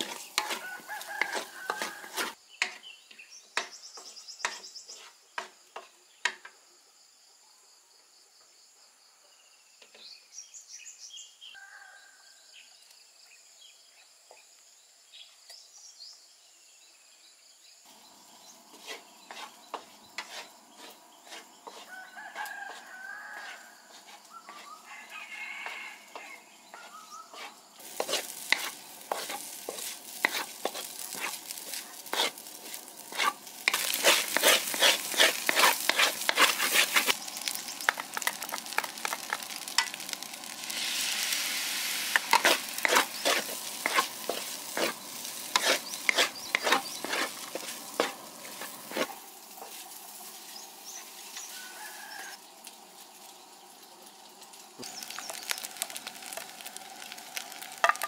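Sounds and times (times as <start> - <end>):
food sizzling: 0.0 - 2.8, 17.9 - 58.0
spatula scraping a wok: 0.0 - 3.0, 3.6 - 5.8, 18.4 - 52.4
rooster crowing: 0.4 - 2.4, 11.6 - 12.4, 21.7 - 28.1, 51.4 - 52.5.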